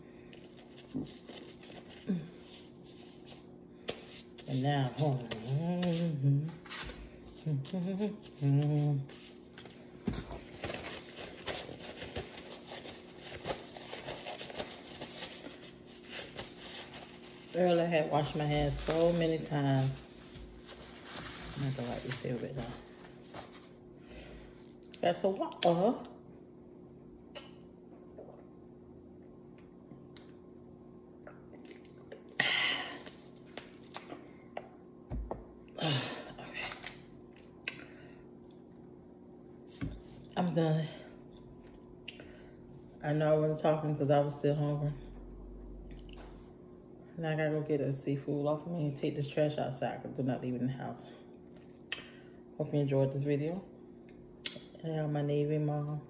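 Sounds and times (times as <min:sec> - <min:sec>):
paper napkin rustling: 0:10.4 - 0:23.8.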